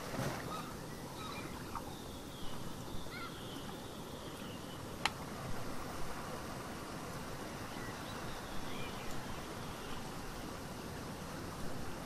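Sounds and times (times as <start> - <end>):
ocean waves washing: 0.0 - 12.0
faint bird chirps: 0.5 - 4.9, 7.7 - 10.1.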